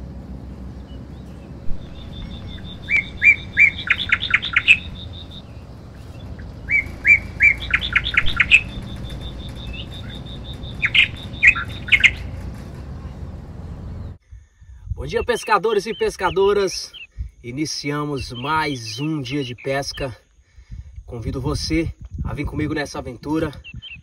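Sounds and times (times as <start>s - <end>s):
songbird singing: 0.0s - 14.2s, 14.9s - 20.4s, 22.4s - 24.0s
low rumble: 0.0s - 15.3s
high ticking notes: 0.3s - 14.1s.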